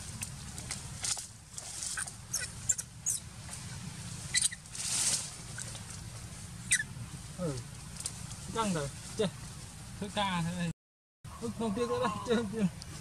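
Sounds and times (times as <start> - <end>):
high-pitched animal squeaks: 1.9 - 3.2, 4.3 - 4.6, 6.7 - 6.9.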